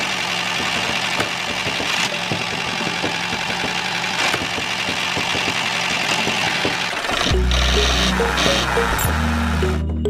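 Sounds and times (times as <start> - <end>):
small motor running: 3.2 - 9.8.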